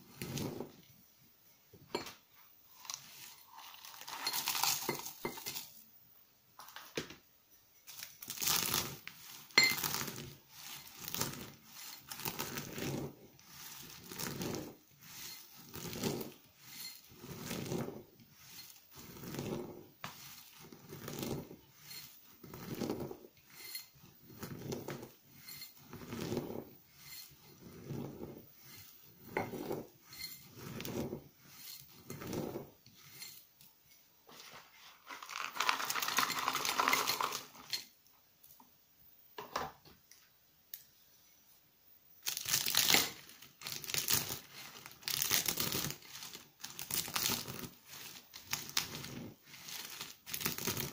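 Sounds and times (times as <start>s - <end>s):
soap flakes crunching in mortar: 8.2s - 29.8s, 35.0s - 37.6s, 42.2s - 50.9s
pestle clinking on metal mortar: 9.6s - 10.0s.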